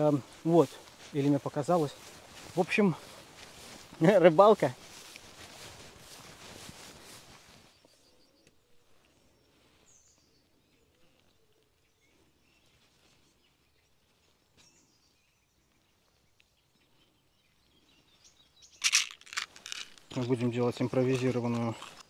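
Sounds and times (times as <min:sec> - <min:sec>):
distant bird chirps: 0:04.8 - 0:22.0.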